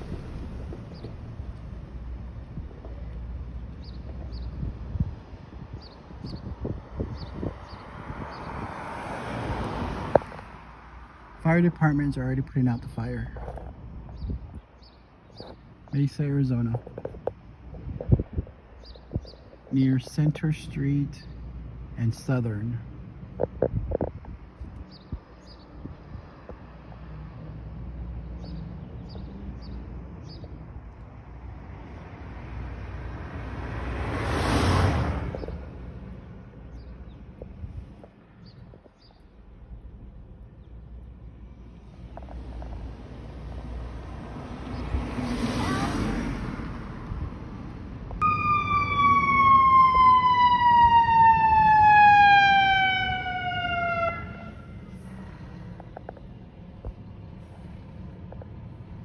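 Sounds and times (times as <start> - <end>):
street ambience rumble: 0.0 - 59.0
fire engine siren: 48.2 - 55.0.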